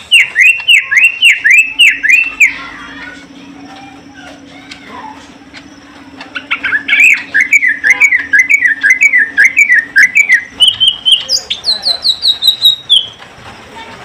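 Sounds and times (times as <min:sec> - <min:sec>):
bird whistled song: 0:00.0 - 0:02.9, 0:06.3 - 0:13.2
sharp high bird chips: 0:00.0 - 0:13.2.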